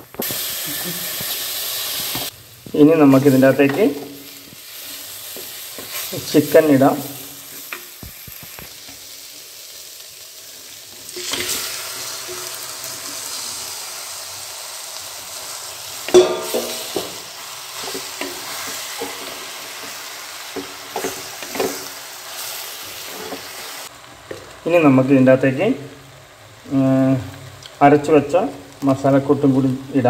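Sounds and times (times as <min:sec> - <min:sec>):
food sizzling in a clay pot: 0:00.0 - 0:30.0
wooden spatula scraping a pot: 0:23.0 - 0:23.6.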